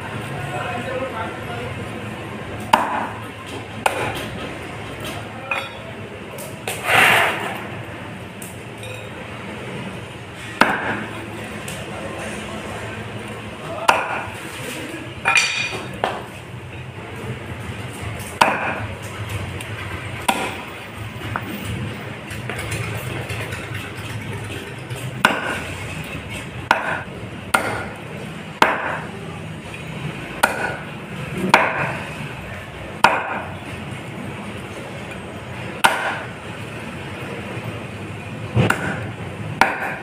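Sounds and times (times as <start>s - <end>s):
low background noise: 0.0s - 40.0s
cleaver chopping fish: 2.7s - 3.2s, 3.8s - 4.2s, 10.6s - 11.1s, 13.8s - 14.3s, 18.3s - 18.9s, 20.2s - 20.7s, 25.2s - 25.7s, 26.7s - 28.0s, 28.6s - 29.1s, 30.4s - 30.8s, 31.4s - 32.0s, 33.0s - 33.5s, 35.8s - 36.3s, 38.6s - 40.0s.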